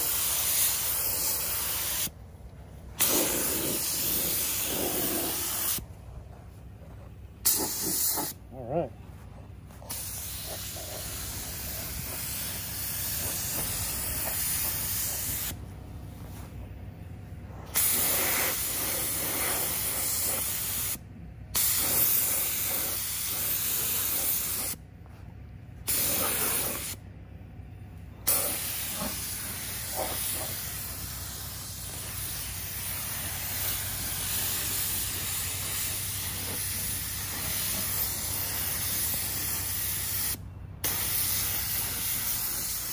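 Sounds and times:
paint spray gun hissing: 0.0 - 2.1, 3.0 - 5.8, 7.4 - 8.4, 9.9 - 15.6, 17.8 - 21.0, 21.6 - 24.8, 25.9 - 27.0, 28.3 - 42.9.

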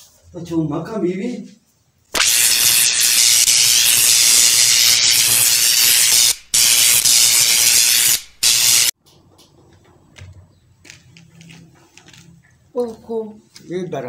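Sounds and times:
loud steady hissing: 2.2 - 9.0.

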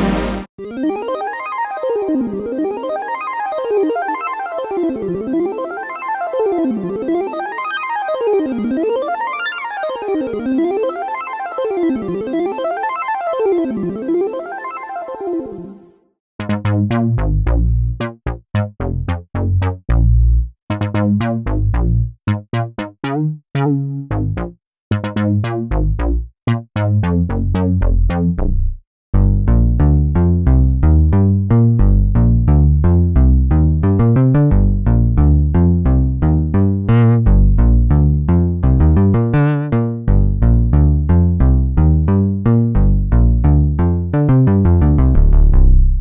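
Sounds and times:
plucked synth bass run: 0.0 - 0.5, 16.4 - 46.0
squelchy synth bass notes: 16.4 - 46.0.

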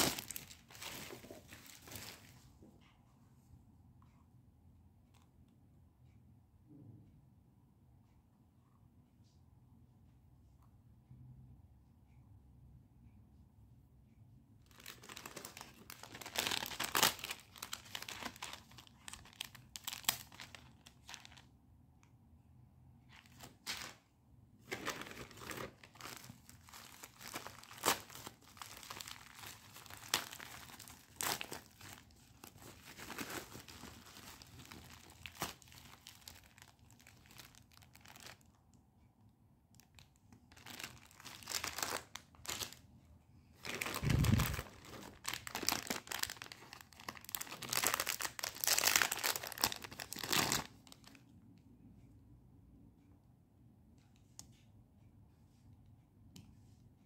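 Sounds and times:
packaging crinkling: 0.0 - 2.3, 14.7 - 21.5, 24.7 - 38.5, 40.5 - 42.8, 43.6 - 51.2.

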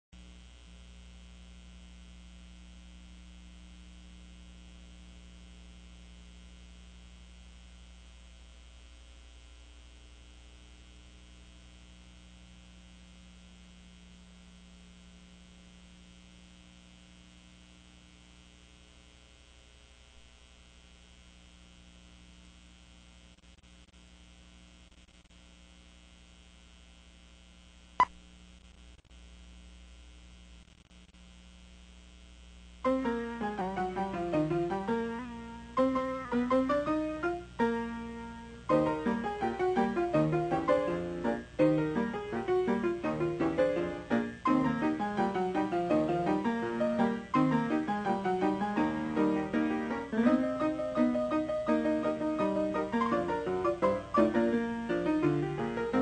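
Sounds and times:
electrical mains hum: 0.2 - 56.0
faint hiss: 27.9 - 56.0.

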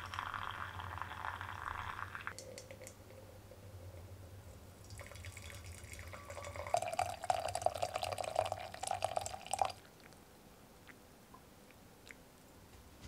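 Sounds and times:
water pouring into glass pot: 0.0 - 3.0, 4.8 - 9.8.

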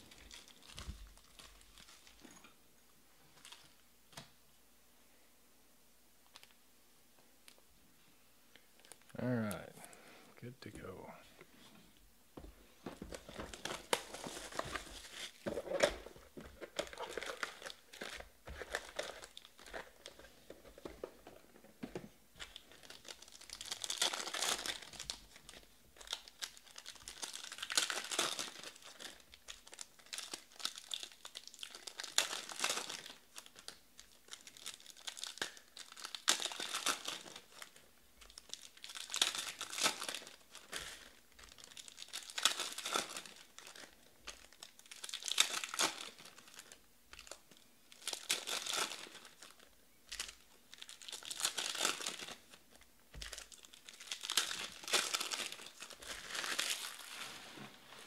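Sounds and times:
card pack wrappers tearing: 13.1 - 20.3, 22.4 - 47.4, 48.0 - 52.6, 53.2 - 57.3.

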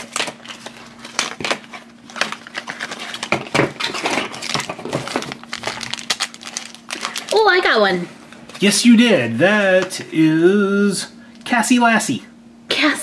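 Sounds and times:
plastic and foil packaging crinkling: 0.0 - 8.7.

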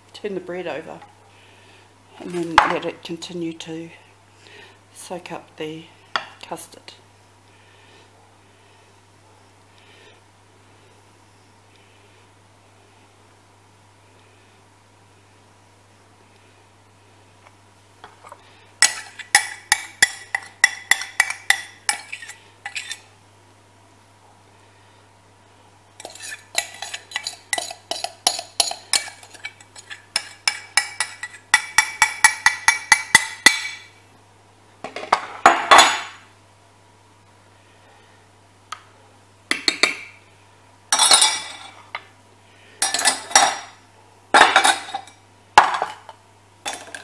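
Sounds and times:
spoon scraping glass dish: 18.2 - 23.1, 26.0 - 33.1
spoon tapping glass dish: 18.8 - 22.1, 30.2 - 33.8.

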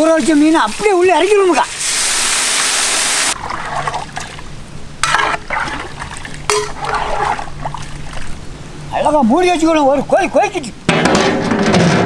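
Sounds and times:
ladle scraping and clinking: 5.0 - 8.3
ladle stirring in metal pot: 5.0 - 8.3.

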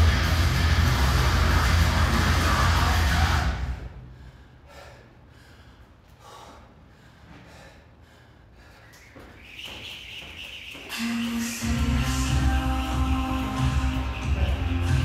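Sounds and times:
music: 0.0 - 3.7, 11.0 - 15.0
person breathing hard: 4.0 - 9.3.

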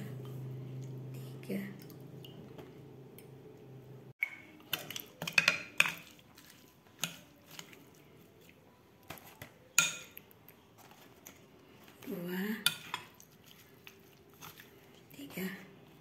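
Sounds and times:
spoon clinking against bowl: 9.8 - 10.2.

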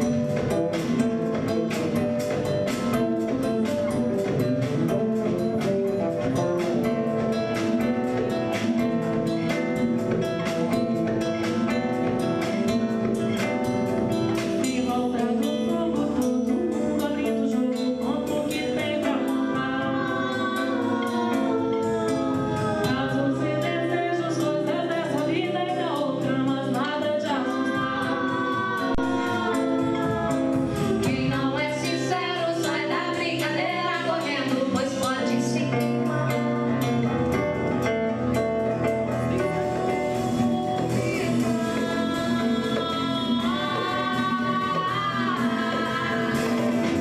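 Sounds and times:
live band with guitar and drums: 0.0 - 47.0
female trio singing in harmony: 26.9 - 32.1, 40.2 - 47.0.

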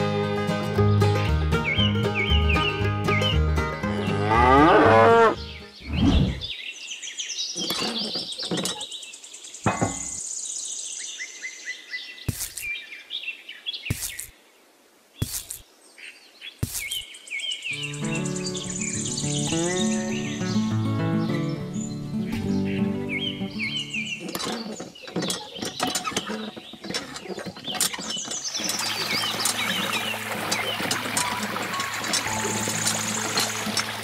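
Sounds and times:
background music: 0.0 - 6.0, 17.8 - 24.2, 29.1 - 34.0
birds chirping: 1.6 - 14.4, 15.2 - 34.0
cow mooing: 3.8 - 5.4.

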